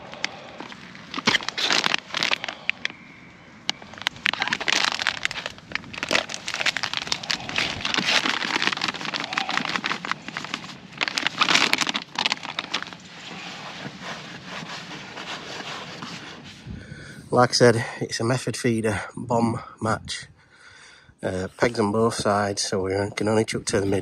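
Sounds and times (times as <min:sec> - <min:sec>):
groundbait rustling into bowl: 0:00.0 - 0:16.2
plastic bag crinkling: 0:00.0 - 0:16.2
hands stirring groundbait: 0:00.0 - 0:16.4.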